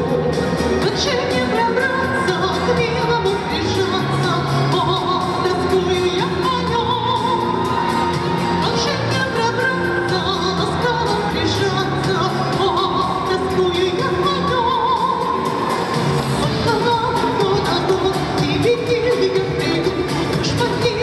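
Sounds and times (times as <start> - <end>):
musical accompaniment: 0.0 - 21.0
person singing with vibrato: 0.0 - 21.0.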